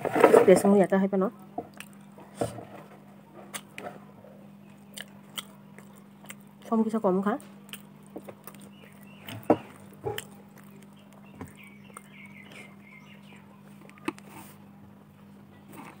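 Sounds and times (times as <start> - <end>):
steady low hum: 0.0 - 16.0
bird chirping: 8.5 - 13.7.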